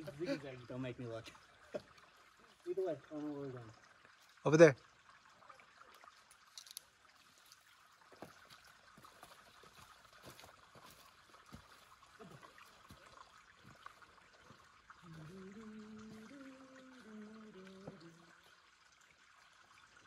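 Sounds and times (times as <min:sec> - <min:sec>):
footsteps on gravel: 0:08.1 - 0:13.0.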